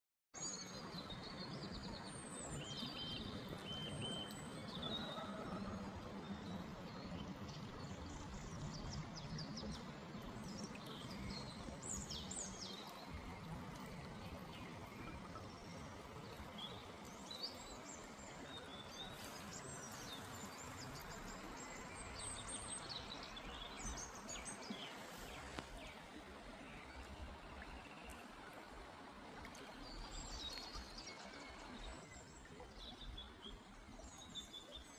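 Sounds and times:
small birds singing: 0:00.4 - 0:28.6
songbirds chirping: 0:00.4 - 0:34.9
river flowing over stones: 0:00.5 - 0:34.9.

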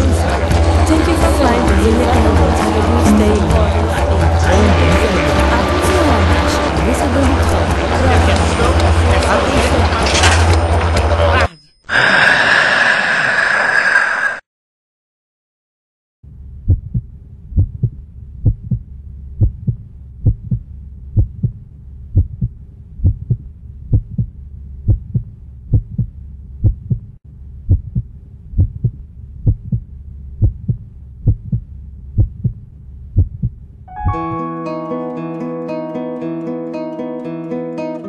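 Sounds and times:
low steady hum: 0:16.3 - 0:33.9
heartbeat thumps: 0:16.6 - 0:33.7
acoustic guitar strumming: 0:33.9 - 0:38.0.

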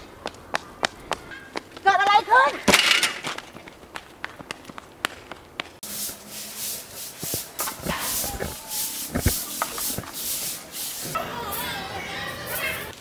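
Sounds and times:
brooms sweeping concrete: 0:05.8 - 0:13.0
broom knocks: 0:07.2 - 0:11.2.

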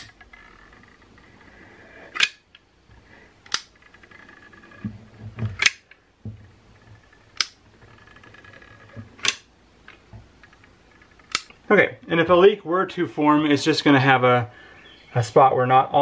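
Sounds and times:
soft handling knocks: 0:06.2 - 0:07.1.

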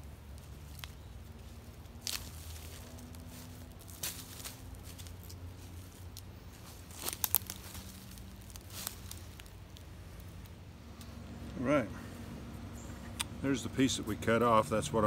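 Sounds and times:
wood and roots cracking: 0:00.0 - 0:11.2
dry leaves crunching: 0:00.0 - 0:11.3.

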